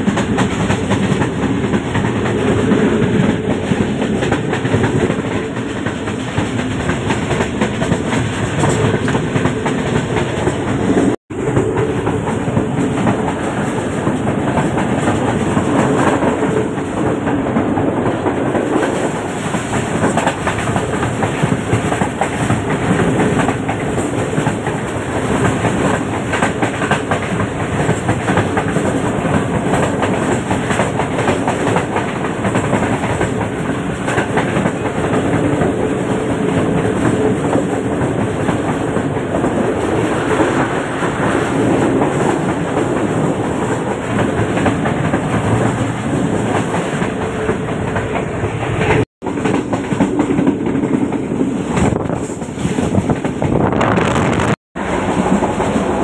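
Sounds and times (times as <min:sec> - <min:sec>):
train carriage rumble: 0:00.0 - 0:56.0.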